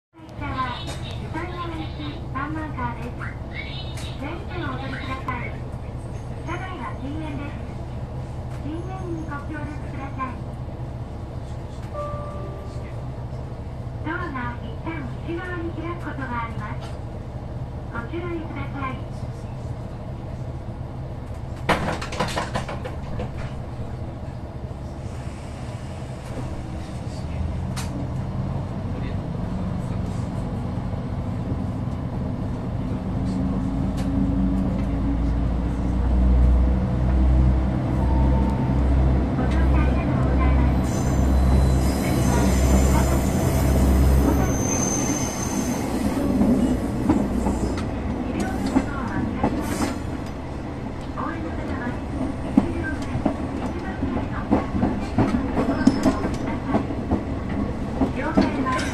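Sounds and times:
railcar engine low rumble: 0:00.1 - 0:58.9
wheel and track rumble: 0:20.9 - 0:44.5
rail-joint clacks: 0:21.3 - 0:23.6, 0:52.6 - 0:58.9
high wheel squeal: 0:40.8 - 0:46.2.

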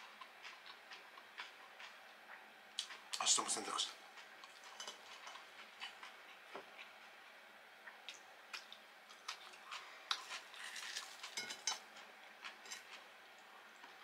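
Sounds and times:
utensils clinking on dishes: 0:04.5 - 0:05.4, 0:10.2 - 0:11.8.

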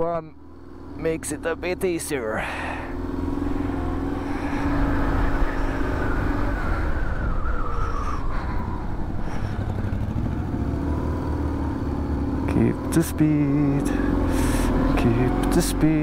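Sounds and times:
wind rumble on microphone: 0:04.2 - 0:10.6.

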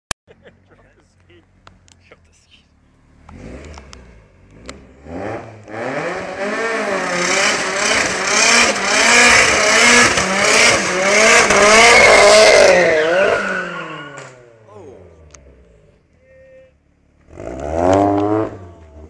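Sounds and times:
car engine at high revs: 0:01.5 - 0:16.1, 0:16.9 - 0:19.0.

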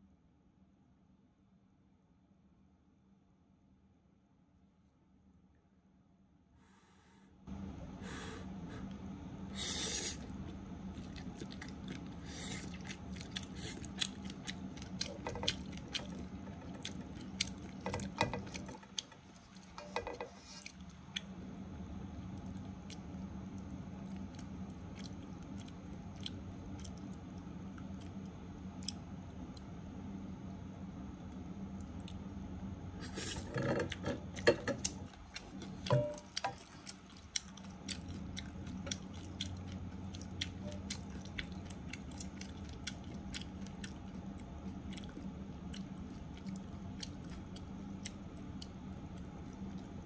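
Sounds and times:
low hum: 0:00.0 - 0:50.0.

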